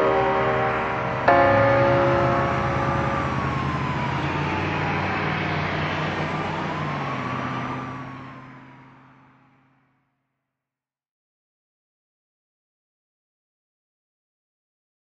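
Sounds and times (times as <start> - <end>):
ringing chord hit: 0.0 - 5.8.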